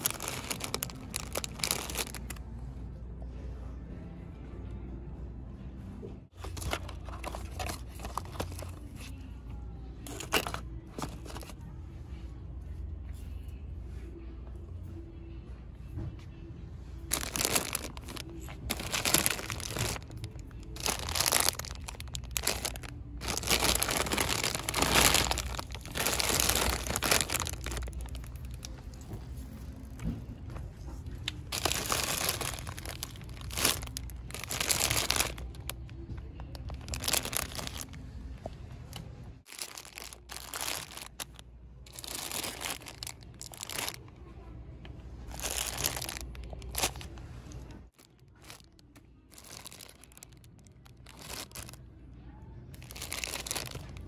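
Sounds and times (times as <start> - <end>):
plastic bags crinkling: 0.0 - 2.4, 6.4 - 9.1, 10.1 - 11.6, 17.1 - 28.9, 31.4 - 35.9, 36.5 - 38.0, 39.4 - 44.1, 45.3 - 47.2, 47.9 - 51.8, 52.7 - 54.0.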